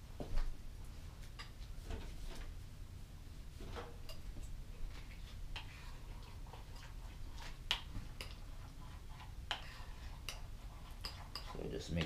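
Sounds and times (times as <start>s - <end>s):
utensil tapping a bowl: 9.5s - 12.0s.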